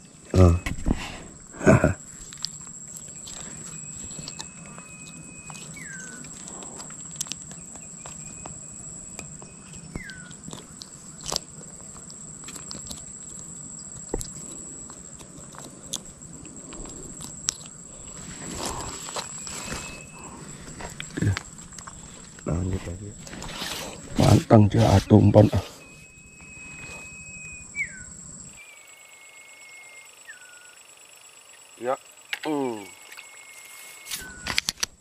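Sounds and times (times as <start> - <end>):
steady high-pitched whine: 0.0 - 35.0
whistled calls sliding down: 23.4 - 30.8.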